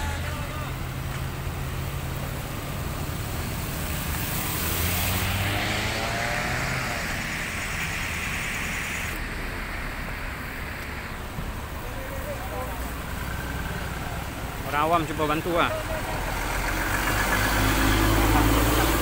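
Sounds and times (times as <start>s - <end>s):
car engine idling: 0.0s - 4.8s, 6.7s - 19.0s
tyres hissing on wet road: 0.0s - 19.0s.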